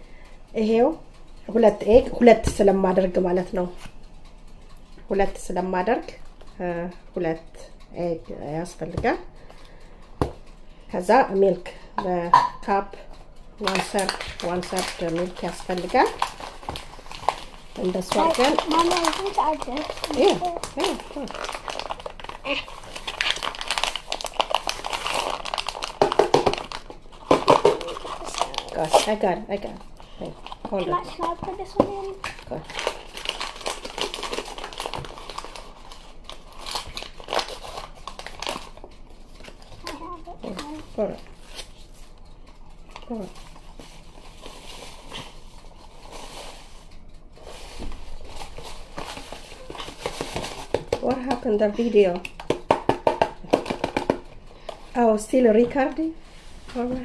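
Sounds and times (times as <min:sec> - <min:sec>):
paper packaging crinkling: 0:13.6 - 0:54.8.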